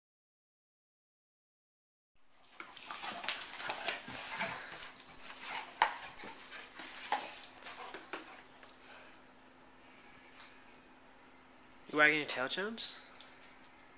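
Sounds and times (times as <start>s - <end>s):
dogs growling and scuffling: 2.3s - 9.2s.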